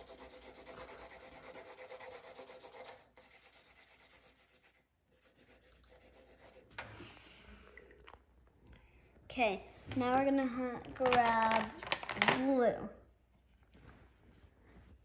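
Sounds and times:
marker scribbling on paper: 0.0 - 6.8.

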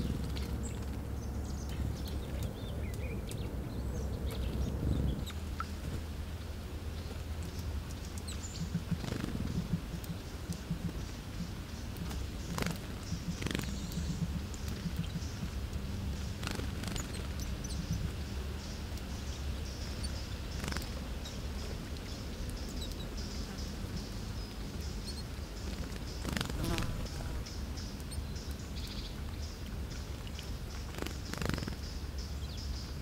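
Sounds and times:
steady low hum: 0.0 - 33.0
bird splashing in water: 12.0 - 17.7.

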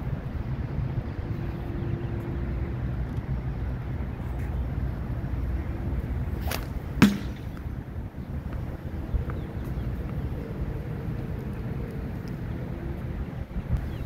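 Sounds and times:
wind noise on microphone: 0.0 - 14.0
rope sling whip cracks: 6.4 - 7.7.

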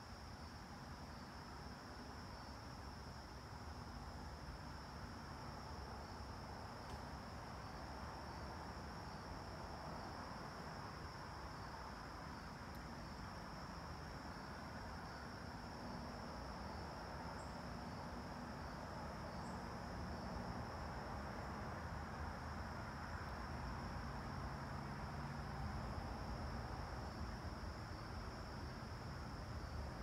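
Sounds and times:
insects trilling: 2.2 - 20.3.

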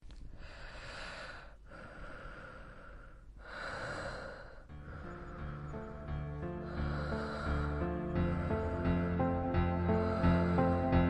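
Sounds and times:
person breathing slowly: 0.2 - 11.0
music with low held notes: 4.7 - 11.0.

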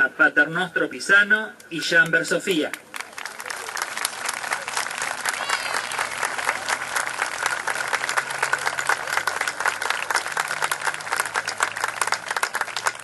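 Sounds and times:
crowd applauding: 2.7 - 13.0.

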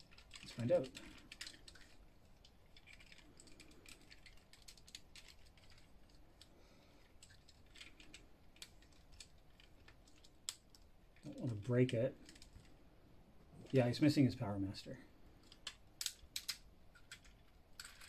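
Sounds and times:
plastic toy clicks and snaps: 15.5 - 18.0.

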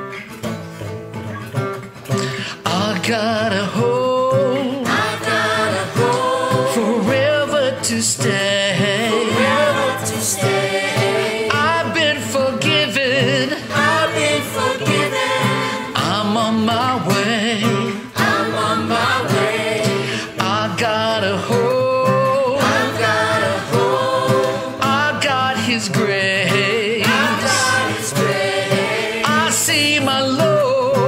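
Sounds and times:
group singing a worship song: 4.6 - 7.8, 8.7 - 21.6, 22.4 - 31.0.

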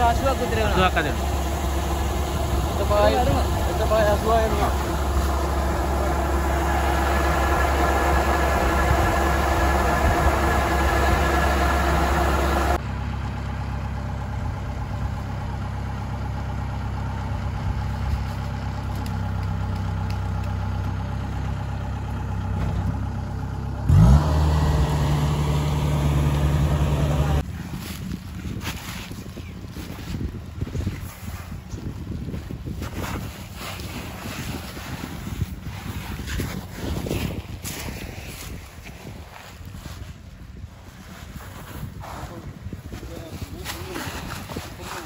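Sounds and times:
engine running: 0.0 - 28.3
diesel engine idling and revving: 0.0 - 45.0.

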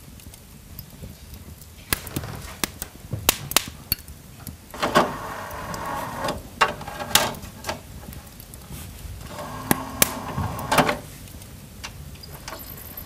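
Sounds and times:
disc tray motor running: 4.8 - 7.2, 9.2 - 11.0.

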